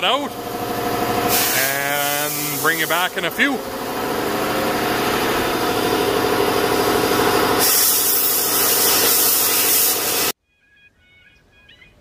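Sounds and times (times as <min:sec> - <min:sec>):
machine droning hum: 0:00.0 - 0:08.8
loud spraying hiss: 0:01.3 - 0:03.4, 0:07.1 - 0:10.4.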